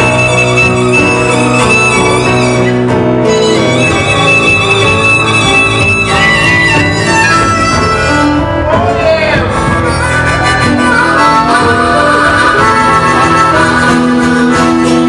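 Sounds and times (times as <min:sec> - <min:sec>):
live band playing instrumental: 0:00.0 - 0:15.0.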